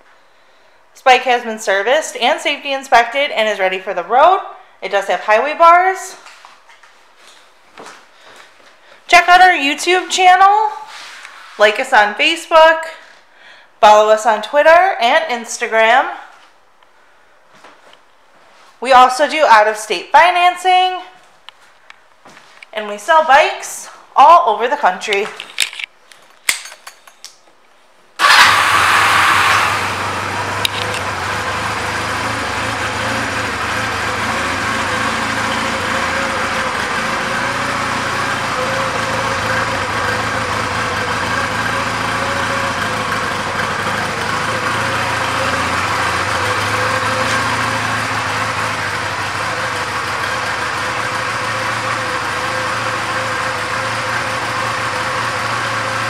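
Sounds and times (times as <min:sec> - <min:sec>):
motorcycle engine starting and idling: 0:28.2 - 0:56.0.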